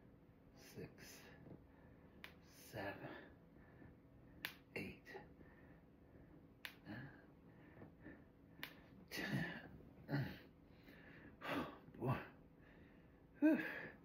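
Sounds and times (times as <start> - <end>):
man breathing hard: 9.1 - 14.0.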